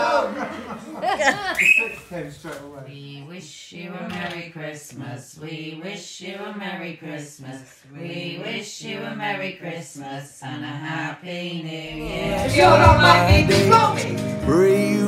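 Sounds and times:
women talking: 1.0 - 1.8
song with acoustic guitar: 11.9 - 15.0.

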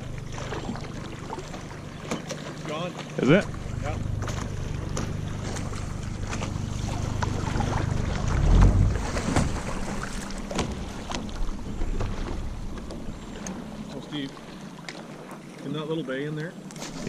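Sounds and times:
waves lapping against kayak hull: 0.0 - 17.0
wind buffeting microphone: 5.1 - 13.8.

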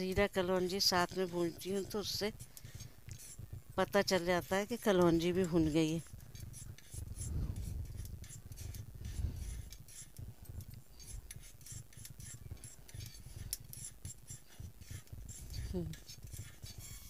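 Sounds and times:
seeds scraped in steel pan: 0.0 - 10.2.

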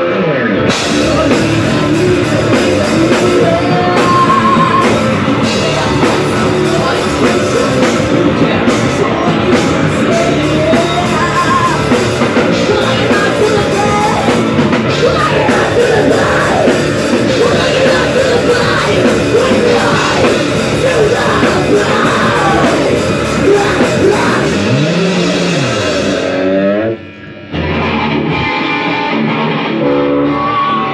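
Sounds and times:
bass guitar: 0.0 - 30.9
drums: 0.0 - 30.9
electric guitar: 0.0 - 30.9
woman singing: 0.9 - 24.6.

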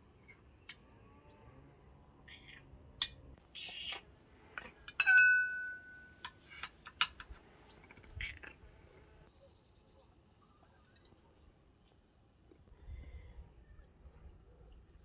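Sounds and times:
dishes and utensils clinking: 4.6 - 7.2
loud ringing clink of glass: 5.0 - 6.2.

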